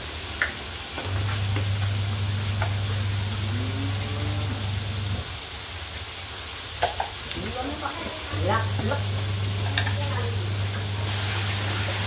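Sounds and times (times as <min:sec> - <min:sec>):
oil sizzling in a wok: 0:00.0 - 0:12.0
steady low hum: 0:01.3 - 0:05.3.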